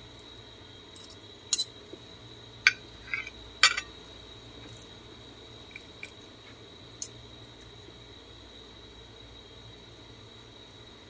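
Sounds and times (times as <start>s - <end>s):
fork clinking and scraping on plate: 2.7s - 3.9s.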